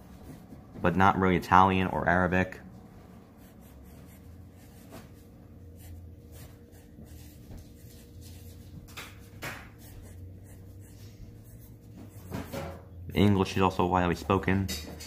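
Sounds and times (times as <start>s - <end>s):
pencil scratching on paper: 3.4s - 12.8s.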